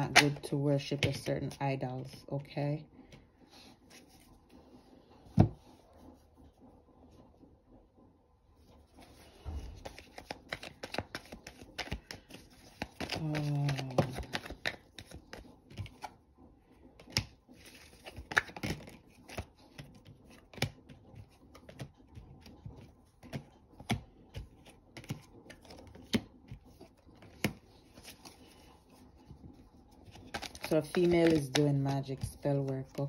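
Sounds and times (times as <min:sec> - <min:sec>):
cards being shuffled: 0:09.0 - 0:16.2, 0:17.0 - 0:33.0.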